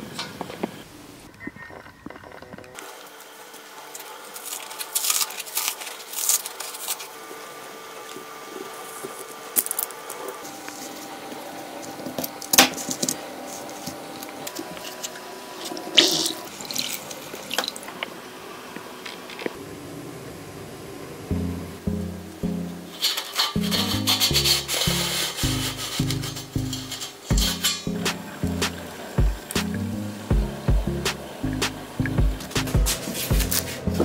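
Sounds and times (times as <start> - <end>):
faint steady tones: 17.1 - 24.2
hand tools scraping and clicking: 22.9 - 28.8, 32.4 - 34.0.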